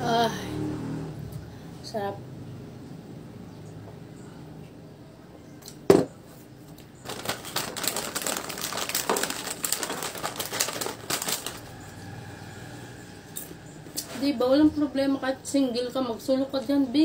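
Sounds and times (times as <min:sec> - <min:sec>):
snack packaging crinkling: 0:06.7 - 0:11.8.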